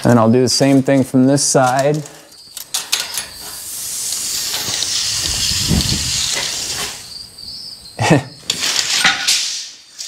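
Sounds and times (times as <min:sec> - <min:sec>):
tape measure blade hissing: 0:02.9 - 0:07.2, 0:08.5 - 0:10.0.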